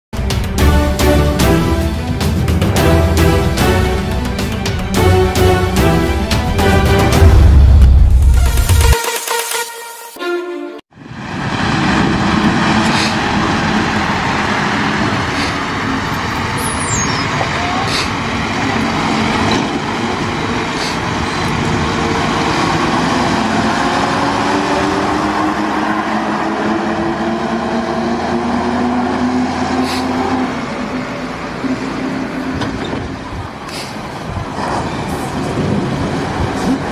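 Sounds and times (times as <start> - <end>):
diesel truck engine driving by: 11.0 - 36.9.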